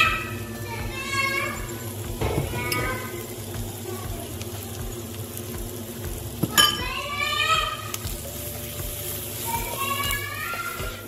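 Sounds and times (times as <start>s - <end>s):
vegetables sizzling in butter: 0.0s - 11.0s
spoon clinking against pot: 6.4s - 6.9s
spoon stirring: 7.6s - 11.0s.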